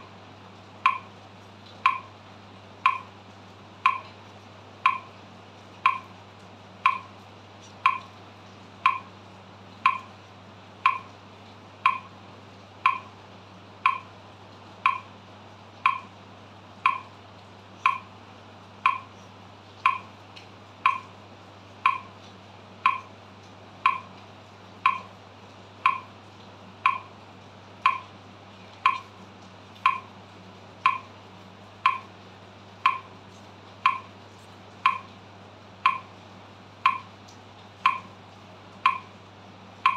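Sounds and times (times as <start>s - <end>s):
metronome ticking: 0.8s - 1.1s, 1.8s - 2.1s, 2.8s - 3.1s, 3.8s - 4.2s, 4.8s - 5.2s, 5.8s - 6.1s, 6.8s - 7.2s, 7.8s - 8.2s, 8.8s - 9.2s, 9.8s - 10.2s, 10.8s - 11.2s, 11.8s - 12.2s, 12.8s - 13.2s, 13.8s - 14.2s, 14.8s - 15.1s, 15.8s - 16.1s, 16.8s - 17.2s, 17.8s - 18.1s, 18.8s - 19.2s, 19.8s - 20.2s, 20.8s - 21.2s, 21.8s - 22.2s, 22.8s - 23.1s, 23.8s - 24.2s, 24.8s - 25.2s, 25.8s - 26.1s, 26.8s - 27.2s, 27.8s - 28.1s, 28.8s - 29.2s, 29.8s - 30.1s, 30.8s - 31.1s, 31.8s - 32.1s, 32.8s - 33.2s, 33.8s - 34.2s, 34.8s - 35.2s, 35.8s - 36.2s, 36.8s - 37.2s, 37.8s - 38.2s, 38.8s - 39.2s.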